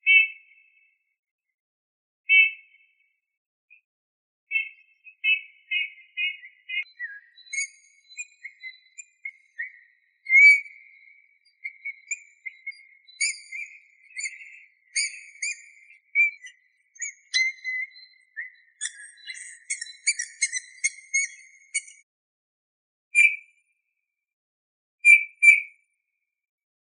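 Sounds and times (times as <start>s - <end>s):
bird whistling song: 0.0s - 0.9s, 2.3s - 2.8s, 4.5s - 22.0s, 23.2s - 23.5s, 25.0s - 25.8s
thin squeaky bird notes: 18.8s - 22.0s.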